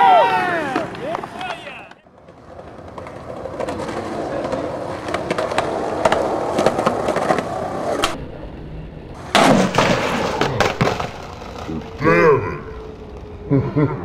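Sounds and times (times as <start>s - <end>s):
skateboard wheels rolling on concrete: 0.0s - 14.0s
skateboard clacking on ground: 0.6s - 8.2s, 9.2s - 12.0s.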